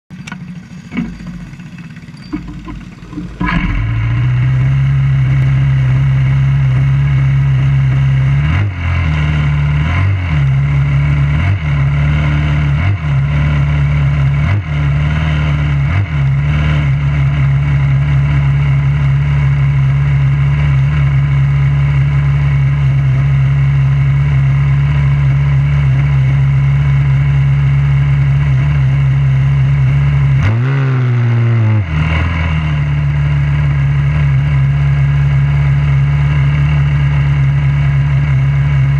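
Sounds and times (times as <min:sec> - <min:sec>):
single-cylinder engine idling: 0:00.1 - 0:08.3.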